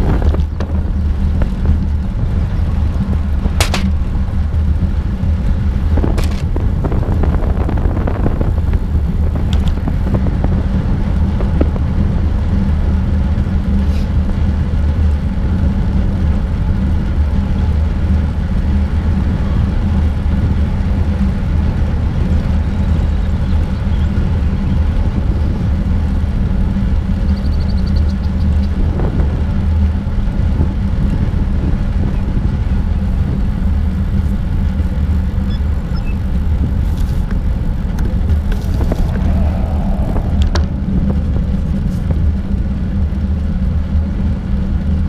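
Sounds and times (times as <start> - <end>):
wind rumbling over microphone: 0.0 - 45.0.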